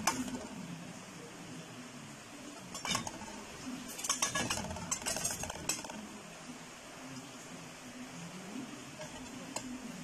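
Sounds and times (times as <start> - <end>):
knife scraping a steel plate: 2.7 - 5.9.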